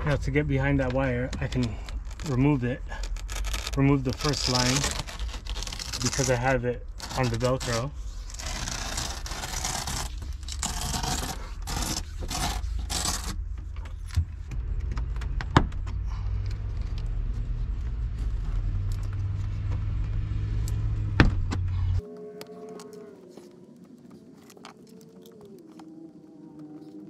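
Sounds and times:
steady low rumble: 0.0s - 22.0s
velcro tearing: 2.0s - 13.4s.

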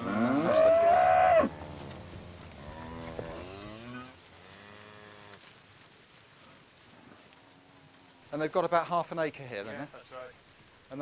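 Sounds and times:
cow mooing loudly: 0.0s - 1.6s
faint cows mooing: 0.0s - 5.4s.

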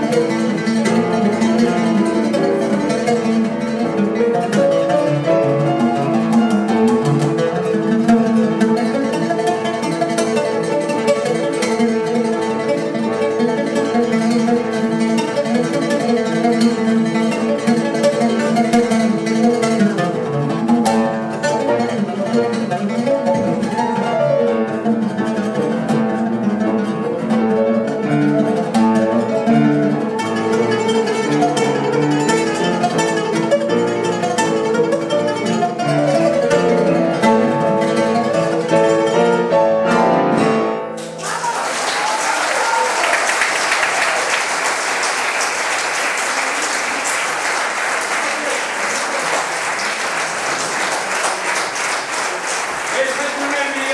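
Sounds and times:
oud plucked solo: 0.0s - 41.4s
audience applause: 41.2s - 53.9s.

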